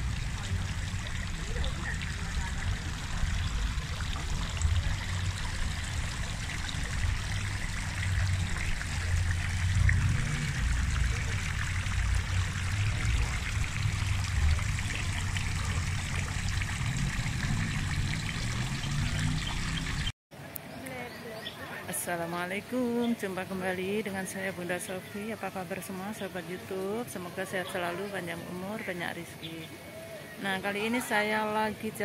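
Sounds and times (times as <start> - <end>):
fountain water trickling: 0.0 - 20.1, 21.1 - 32.0
wind rumble on microphone: 0.0 - 20.1.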